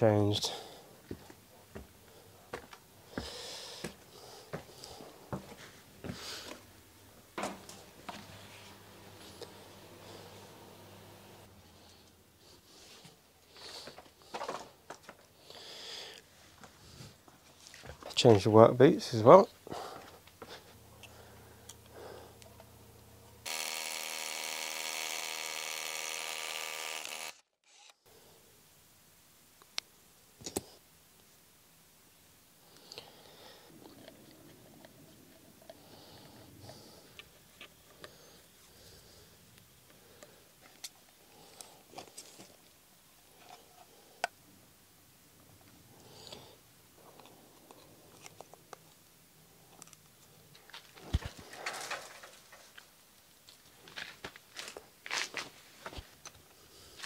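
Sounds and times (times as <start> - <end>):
faint hum: 0.5 - 13.4, 19.5 - 25.1
cordless drill motor running: 21.0 - 27.9.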